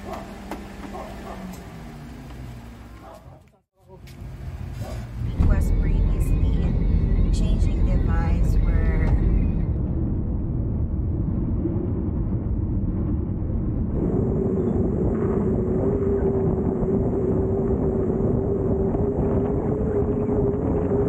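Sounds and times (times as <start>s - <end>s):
motorboat engine running: 0.0s - 3.3s.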